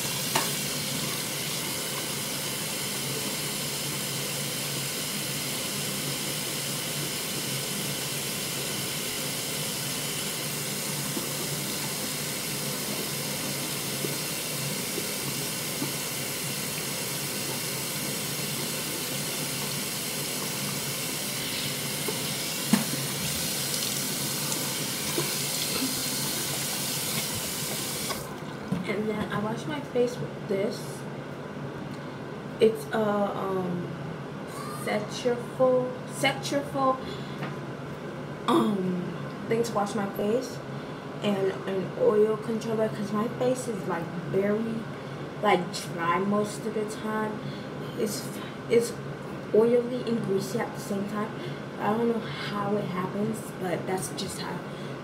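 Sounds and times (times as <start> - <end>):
sink tap running: 0.0 - 28.5.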